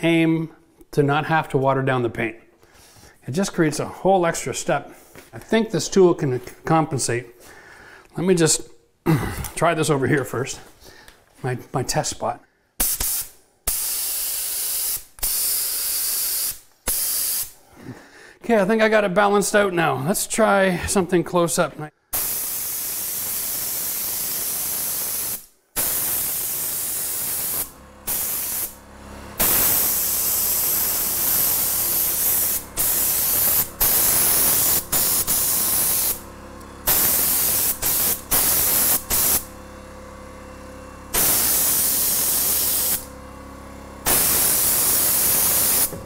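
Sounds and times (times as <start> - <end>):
spray gun hissing: 12.8 - 17.6, 22.1 - 39.6, 41.1 - 43.1, 44.0 - 46.0.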